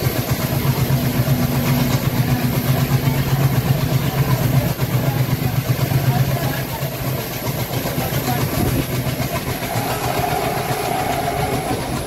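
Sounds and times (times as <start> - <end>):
diesel locomotive engine chugging: 0.0 - 12.0
train wheels clicking over rails: 0.0 - 12.0
steady high whine: 9.4 - 12.0.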